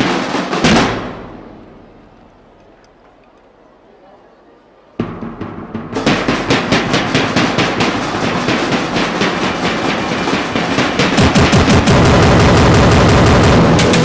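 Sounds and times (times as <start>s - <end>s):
music with fast drumbeat: 5.0s - 14.0s.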